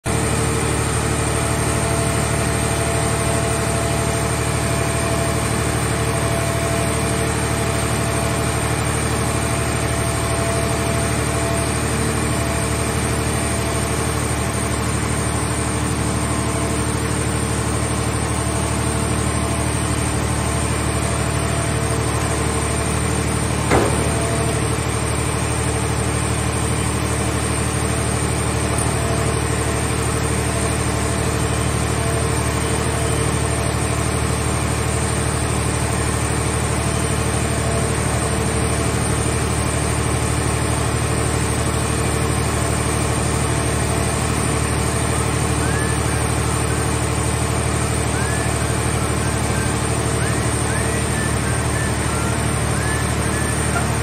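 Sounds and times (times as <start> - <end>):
engine and hydraulic unit running: 0.1 - 54.0
sharp metal clank: 23.6 - 25.0.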